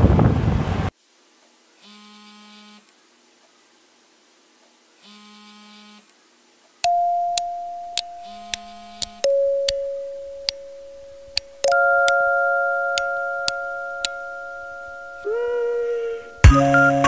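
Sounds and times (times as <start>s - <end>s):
sharp ticks: 6.8s - 12.2s, 13.0s - 15.4s
sustained synthesizer note: 6.9s - 17.0s
buzzy electronic tones: 10.4s - 17.0s.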